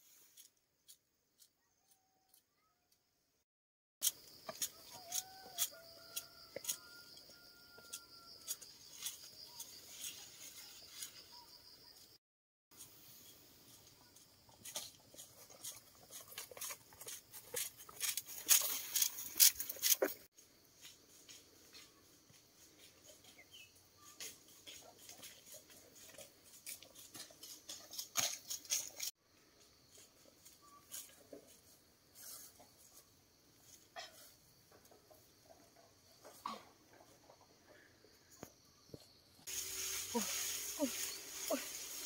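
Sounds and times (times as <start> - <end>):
footsteps crunching dry leaves: 39.5 - 42.0.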